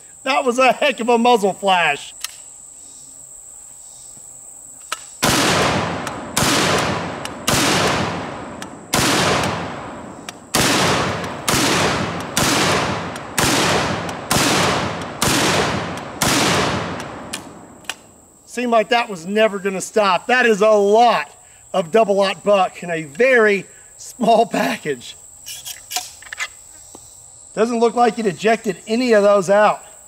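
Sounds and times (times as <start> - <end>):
high insect drone: 0.0 - 30.0
shotgun blasts: 5.2 - 17.8.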